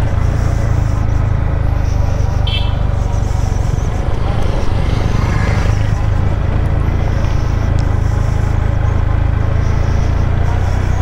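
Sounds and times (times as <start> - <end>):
motorcycle engine low hum: 0.0 - 11.0
passing motorcycle: 0.0 - 11.0.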